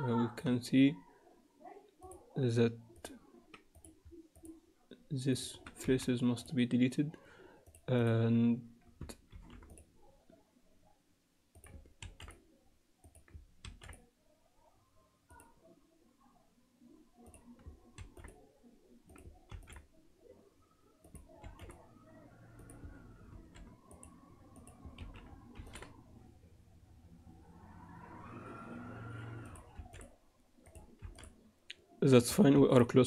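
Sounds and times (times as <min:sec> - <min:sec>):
mouse and keyboard clicks: 0:22.6 - 0:26.0, 0:29.1 - 0:31.4.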